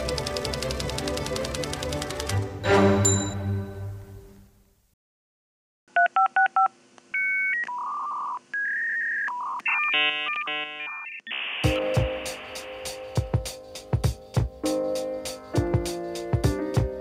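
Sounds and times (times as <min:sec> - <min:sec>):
touch-tone dialing beeps: 0:06.0 - 0:11.2.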